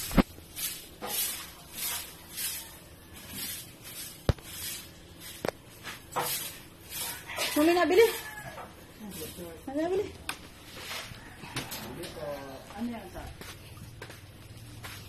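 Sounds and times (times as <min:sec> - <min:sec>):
footsteps scuffing on concrete: 0:03.3 - 0:07.2, 0:13.2 - 0:15.0.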